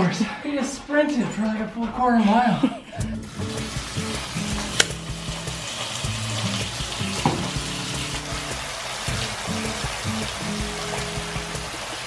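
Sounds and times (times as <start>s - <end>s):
background music: 0.0s - 12.0s
water running into bathtub: 2.9s - 12.0s
sharp click: 4.8s - 5.0s.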